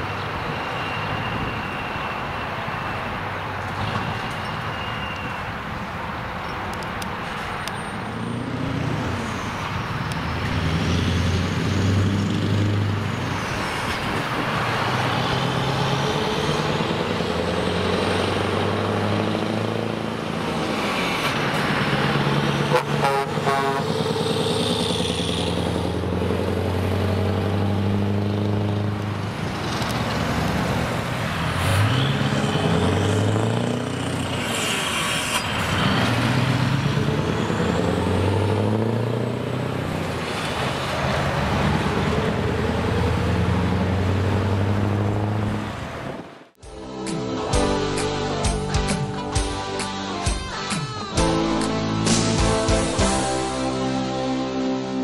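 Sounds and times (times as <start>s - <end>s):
diesel truck engine passing: 7.6s - 49.2s.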